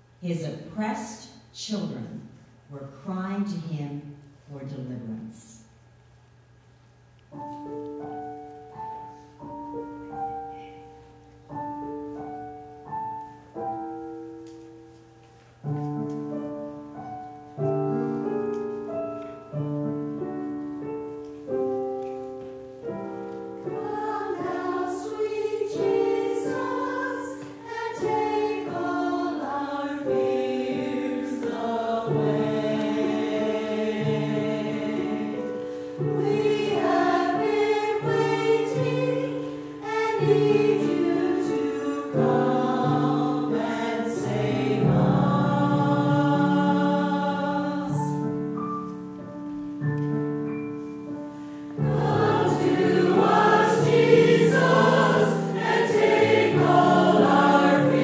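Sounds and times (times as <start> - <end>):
piano playing slow chords: 7.3 - 58.0
church choir singing: 23.2 - 48.6, 51.7 - 58.0.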